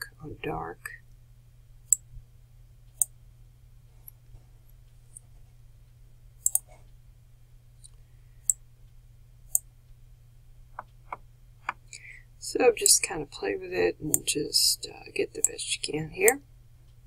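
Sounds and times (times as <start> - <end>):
low steady hum: 0.0 - 17.0
mouse buttons clicking: 6.4 - 6.7.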